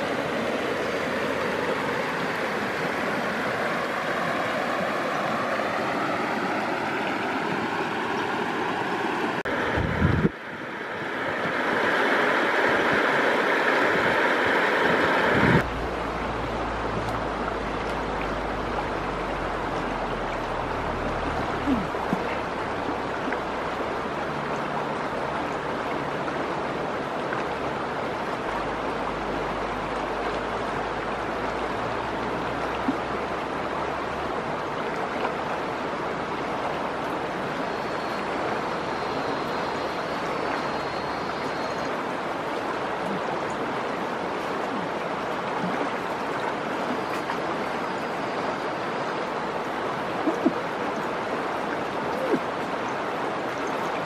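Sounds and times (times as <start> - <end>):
river water rushing: 0.0 - 54.0
low rumble: 15.2 - 25.7.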